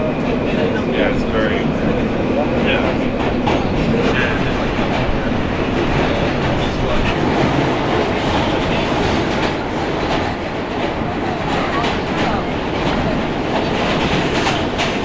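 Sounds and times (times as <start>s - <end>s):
subway train rumbling: 0.0s - 15.0s.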